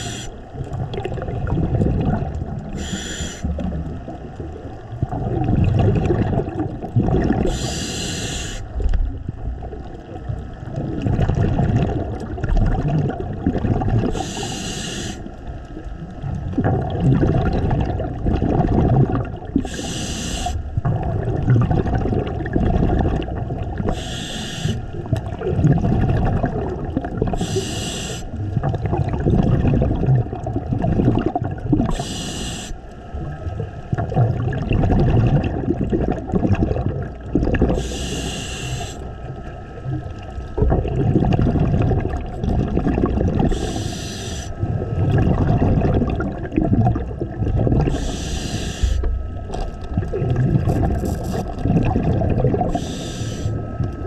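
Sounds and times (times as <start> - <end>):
hissing regulator inhalations: 0.0 - 0.4, 2.8 - 3.5, 7.5 - 8.7, 14.1 - 15.3, 19.6 - 20.6, 23.9 - 24.9, 27.3 - 28.3, 31.9 - 32.8, 37.8 - 39.1, 43.5 - 44.6, 47.9 - 49.1, 52.7 - 53.6
gurgling exhaled bubbles: 0.0 - 54.0.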